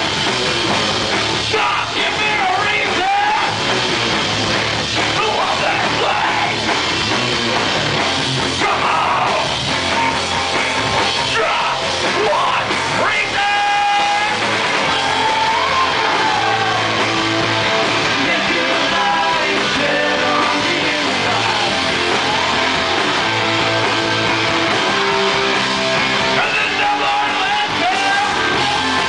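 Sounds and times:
distorted electric guitars: 0.0s - 29.0s
pounding drum kit: 0.0s - 29.0s
singer yelling: 1.4s - 3.6s, 5.1s - 6.7s, 8.5s - 10.2s, 11.2s - 17.1s, 26.3s - 29.0s.

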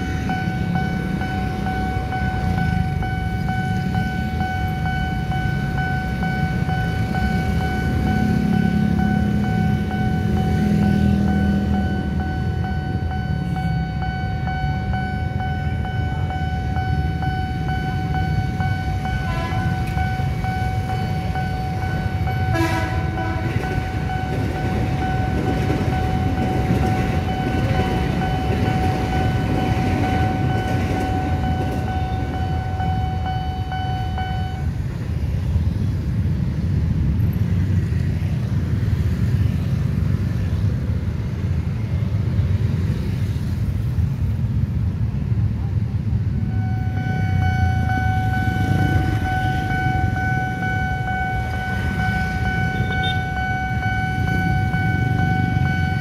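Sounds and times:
level crossing warning tone: 0.0s - 35.8s, 46.4s - 56.0s
train rumbling: 0.0s - 56.0s
waiting traffic: 0.0s - 56.0s
train horn blasts: 19.2s - 20.0s, 22.4s - 23.8s, 46.6s - 49.3s.

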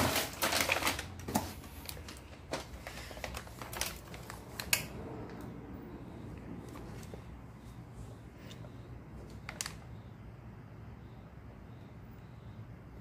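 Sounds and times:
cardboard and plastic rustling: 0.0s - 5.4s, 6.6s - 7.3s, 9.2s - 9.9s.

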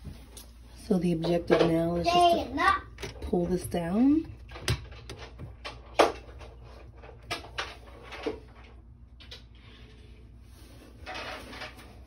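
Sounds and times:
plastic knocks and clicks: 4.3s - 6.5s.

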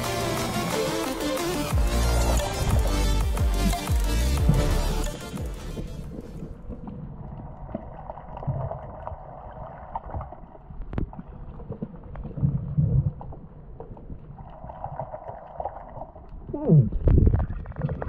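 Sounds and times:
underwater rumble of moving water: 4.4s - 18.0s.

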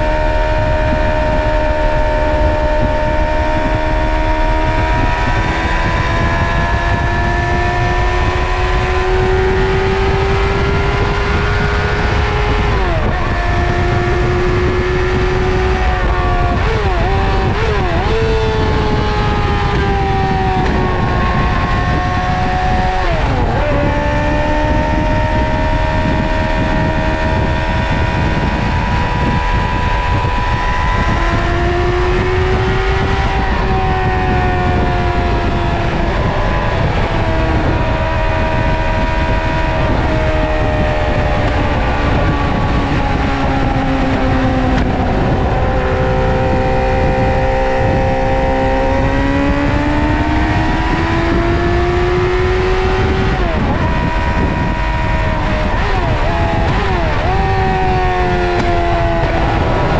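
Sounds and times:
motorcycle engine running: 0.0s - 59.9s
low rush of noise: 57.8s - 59.9s.

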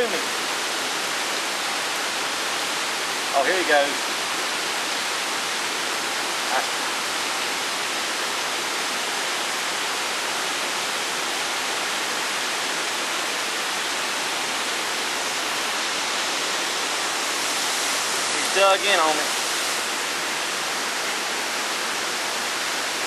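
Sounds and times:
steady rushing noise: 15.4s - 20.4s.

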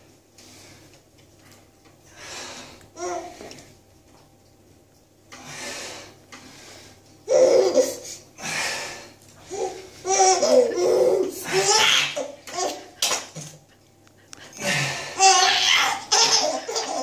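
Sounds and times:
baby laughing: 7.3s - 8.0s, 9.5s - 13.2s, 15.2s - 17.0s.

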